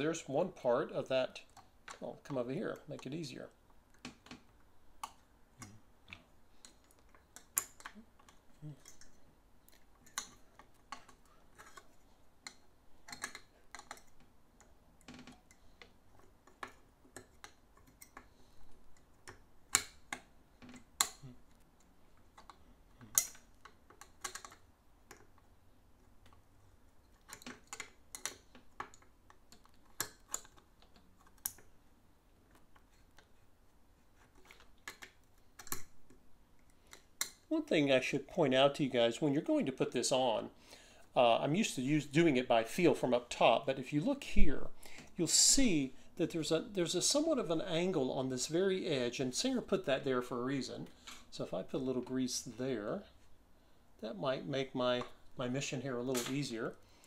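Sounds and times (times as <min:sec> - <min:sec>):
light metal clicks and taps: 0:05.0 - 0:18.3.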